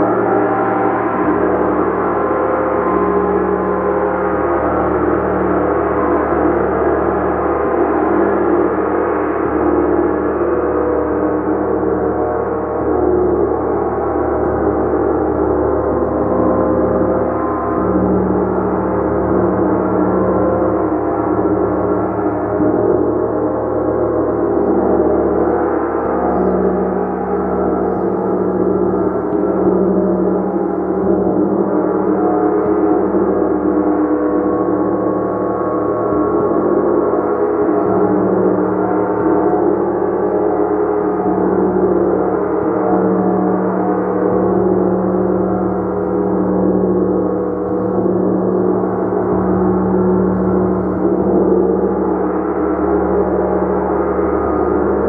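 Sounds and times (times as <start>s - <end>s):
gong ringing: 0.0s - 7.1s.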